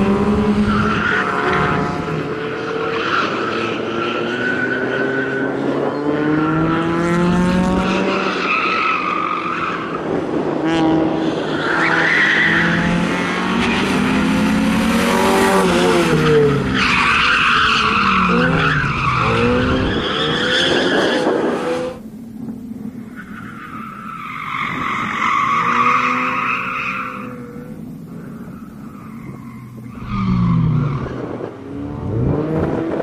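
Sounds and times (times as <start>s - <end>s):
race car engine revving: 0.0s - 4.3s, 30.0s - 33.0s.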